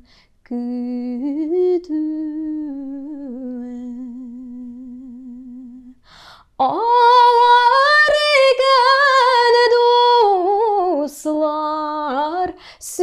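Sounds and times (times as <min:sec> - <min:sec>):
woman singing unaccompanied: 0:00.4 - 0:06.0, 0:06.6 - 0:13.0
quick breath: 0:06.0 - 0:06.5.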